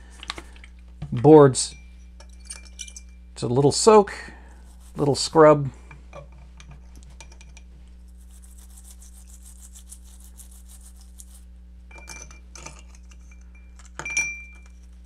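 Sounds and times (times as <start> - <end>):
light clinks against glass bowl: 1.7 - 3.3, 11.9 - 14.8
toothbrush scrubbing circuit board: 4.6 - 5.4, 8.0 - 11.5.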